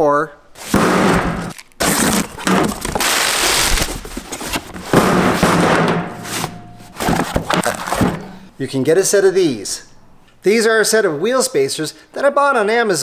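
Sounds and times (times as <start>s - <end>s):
packing tape ripping: 0.6s - 5.1s
cardboard crackling: 0.6s - 8.5s.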